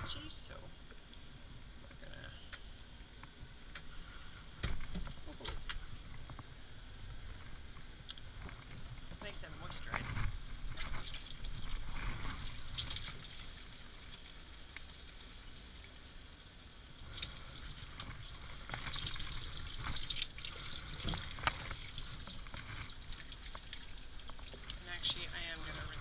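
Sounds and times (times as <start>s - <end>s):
steady low hum: 0.0s - 26.0s
water splashing from hose nozzle: 10.7s - 16.0s, 16.9s - 26.0s.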